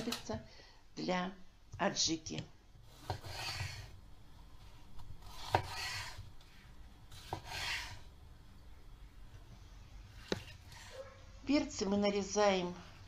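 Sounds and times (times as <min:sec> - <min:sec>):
knife cutting bell pepper: 0:02.9 - 0:03.9, 0:05.2 - 0:06.3, 0:07.1 - 0:08.1.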